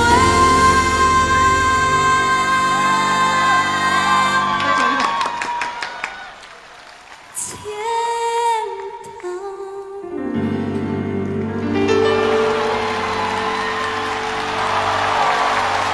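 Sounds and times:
soft musical accompaniment: 0.0s - 5.0s, 8.1s - 15.9s
woman singing with vibrato: 0.0s - 5.1s, 7.4s - 10.3s.

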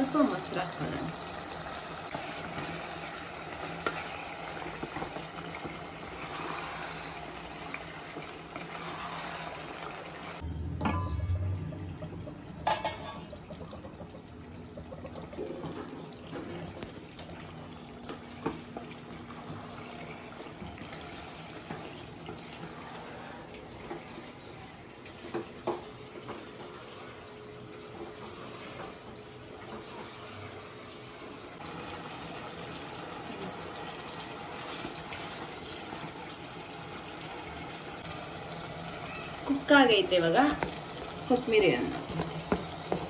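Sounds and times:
spatula stirring food in pot: 0.0s - 10.4s, 34.1s - 37.0s.

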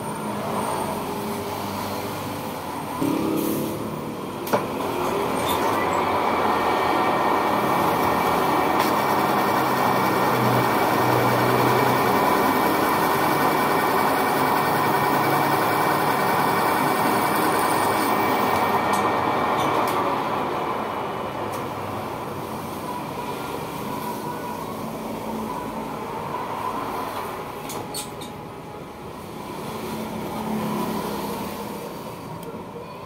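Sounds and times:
lathe cutting: 3.0s - 20.8s.

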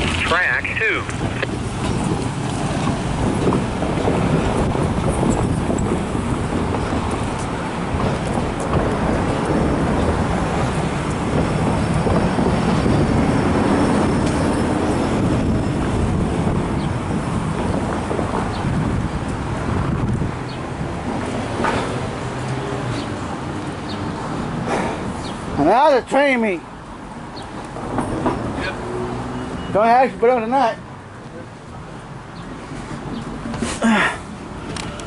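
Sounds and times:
freight train rumbling past: 0.7s - 23.5s.

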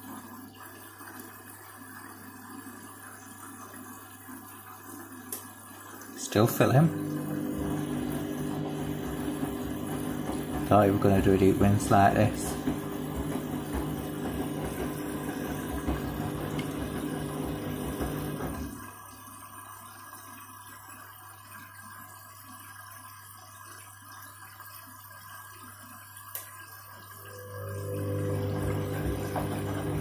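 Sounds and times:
washing machine hum: 0.0s - 30.0s
water rushing into washing machine: 0.0s - 30.0s
drum turning in sudsy water: 6.4s - 18.9s, 27.5s - 30.0s.

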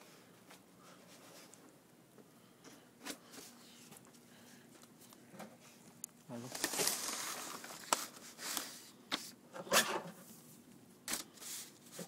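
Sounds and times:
sheets rustling and scraping: 6.4s - 8.9s.

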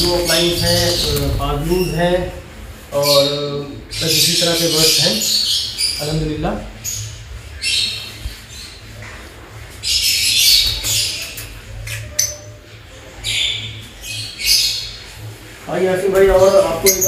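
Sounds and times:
lovebirds squawking: 0.0s - 9.2s.

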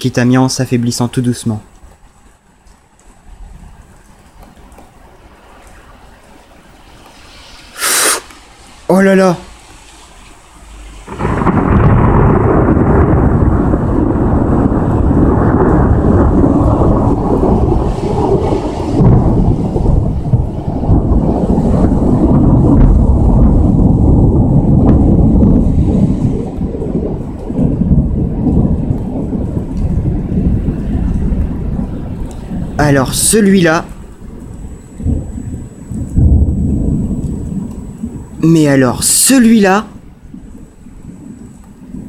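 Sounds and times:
thunder crack and rumble: 11.0s - 42.0s.

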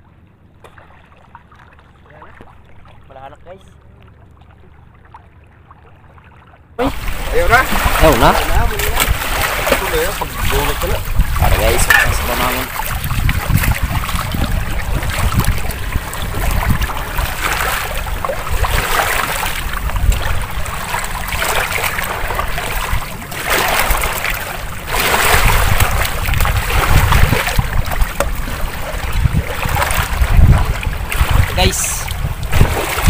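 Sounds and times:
waves lapping over rocks: 6.8s - 33.0s
wind buffeting microphone: 6.9s - 33.0s.

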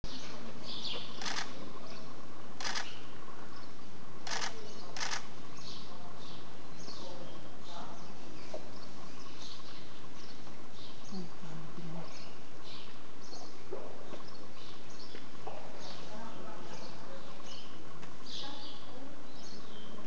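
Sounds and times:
camera shutter bursts: 1.2s - 1.5s, 2.6s - 3.0s, 4.2s - 5.3s.

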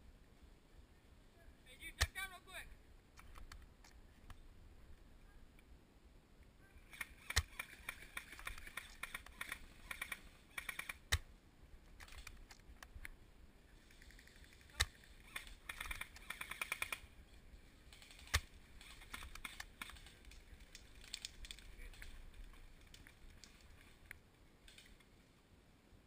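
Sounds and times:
rapid airsoft gun bursts: 6.9s - 11.2s, 14.6s - 17.1s.

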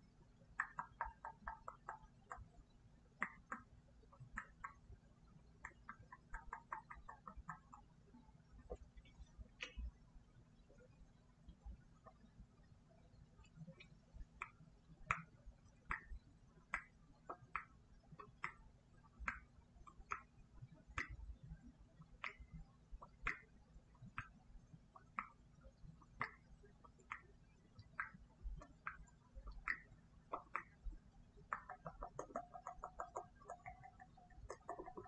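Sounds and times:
mouth clicks and pops: 0.5s - 2.6s, 3.2s - 4.9s, 5.5s - 8.0s, 13.4s - 21.4s, 22.0s - 35.0s.

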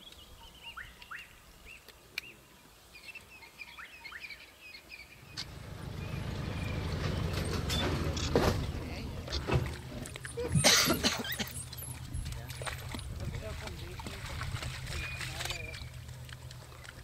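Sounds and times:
small birds chirping: 0.0s - 9.0s
low rumble: 5.2s - 10.6s.

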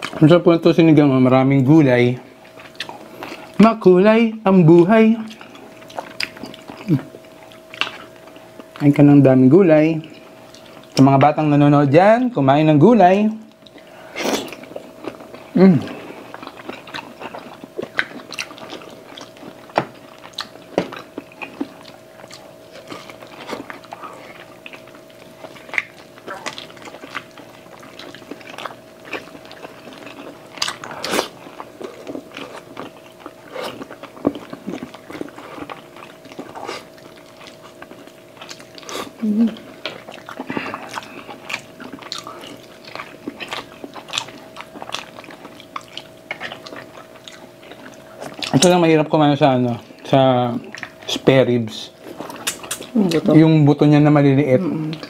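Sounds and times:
close-miked chewing: 0.0s - 0.8s, 1.6s - 11.7s, 13.0s - 55.0s
faint steady hum: 0.0s - 55.0s
mouth and teeth clicks: 52.2s - 53.0s.

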